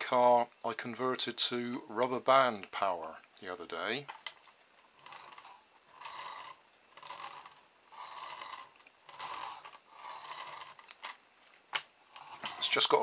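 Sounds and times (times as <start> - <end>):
toy car wheels whirring: 4.2 - 13.0.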